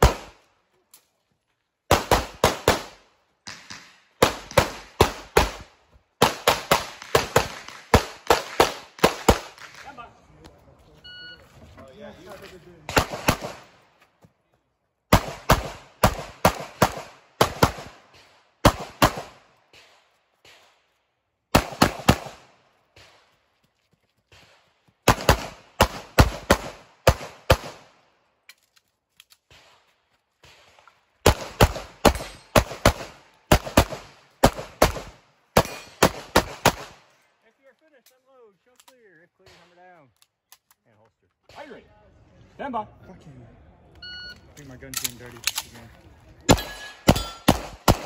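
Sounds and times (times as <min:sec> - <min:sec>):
pistol shots: 0:00.0 - 0:00.4, 0:01.9 - 0:09.9, 0:12.9 - 0:13.8, 0:15.1 - 0:20.8, 0:21.5 - 0:23.3, 0:25.0 - 0:27.9, 0:30.4 - 0:37.0, 0:46.5 - 0:48.0.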